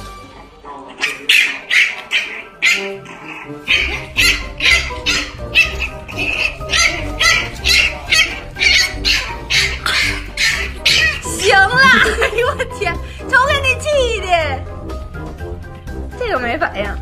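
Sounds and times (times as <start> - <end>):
puppy yapping: 1.0 - 12.0
background music with steady beat: 2.8 - 17.0.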